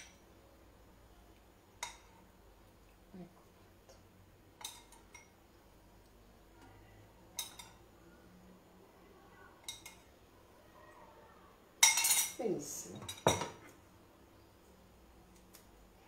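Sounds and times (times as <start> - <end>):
spoon clinking ceramic bowl: 11.8 - 12.4.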